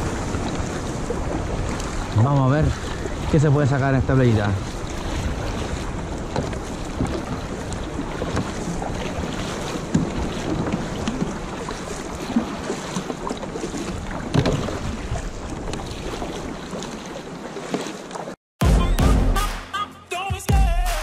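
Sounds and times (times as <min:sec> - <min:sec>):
water washing around kayak: 0:00.0 - 0:18.4.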